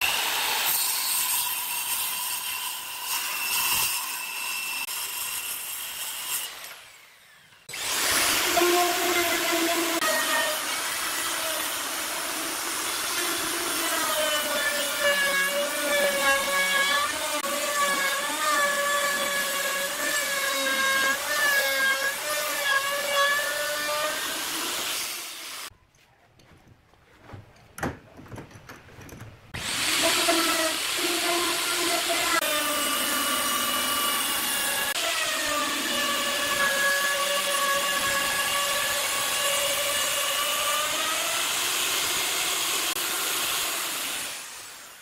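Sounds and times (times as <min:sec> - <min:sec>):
power tool cutting wood: 0:00.0 - 0:25.7, 0:29.5 - 0:45.0
knocks: 0:26.4 - 0:29.5.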